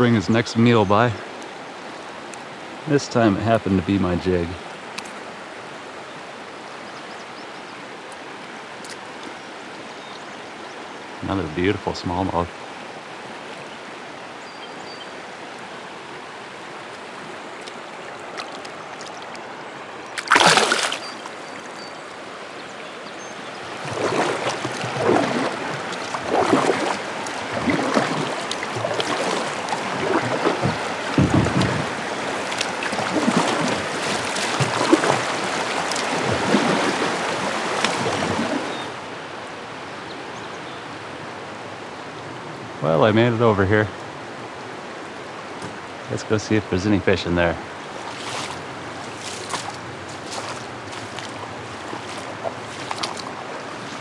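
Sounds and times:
rocky river current rushing: 0:00.0 - 0:40.0, 0:40.8 - 0:54.0
loud splash: 0:20.2 - 0:21.3, 0:23.7 - 0:38.9, 0:47.9 - 0:54.0
kayak paddle strokes swishing: 0:20.2 - 0:21.4, 0:23.6 - 0:38.9, 0:47.9 - 0:54.0.

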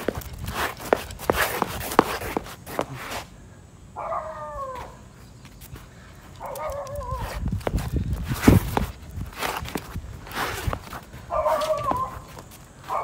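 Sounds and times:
footsteps on paved path: 0:00.0 - 0:03.4, 0:04.6 - 0:13.0
dog whining: 0:06.5 - 0:07.4, 0:11.3 - 0:12.3.

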